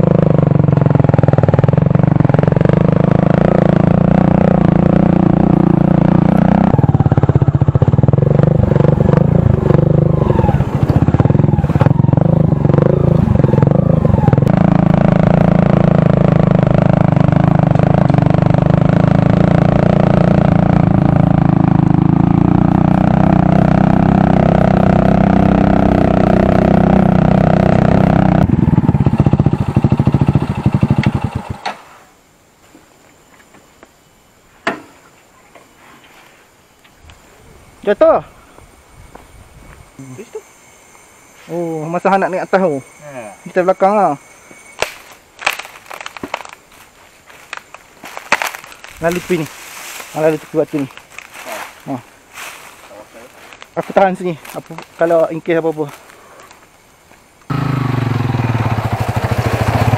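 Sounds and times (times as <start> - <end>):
bike rattling on bumpy trail: 0.0 - 31.6, 44.6 - 56.8
motorcycle engine running: 0.0 - 31.6, 39.7 - 56.1, 57.5 - 59.9.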